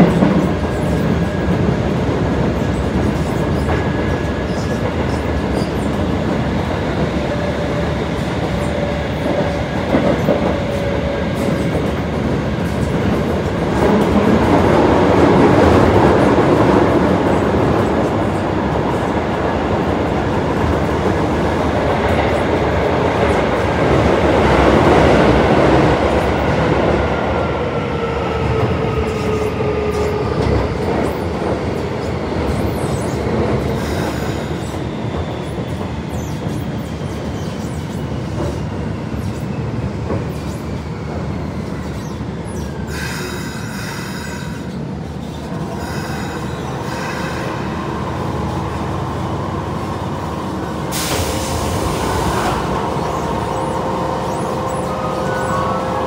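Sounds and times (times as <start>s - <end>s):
wheels rumbling on rail: 0.0s - 56.0s
train brake noise: 50.8s - 55.6s.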